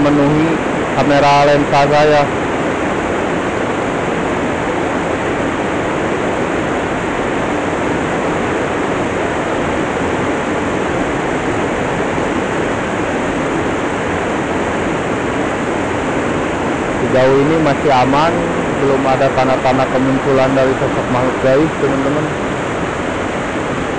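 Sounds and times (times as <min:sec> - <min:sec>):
waterfall rushing: 0:00.0 - 0:23.9.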